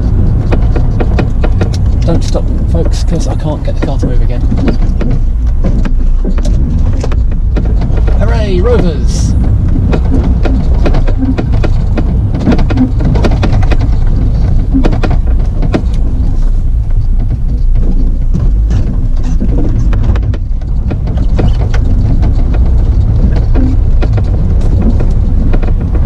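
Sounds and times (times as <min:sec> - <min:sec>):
car low rumble: 0:00.0 - 0:26.0.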